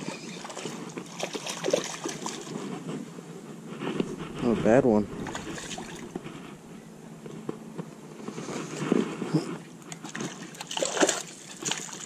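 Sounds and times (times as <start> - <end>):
small knocks and scrapes: 2.5 - 10.3
water lapping against rocks: 3.9 - 6.9, 9.9 - 12.0.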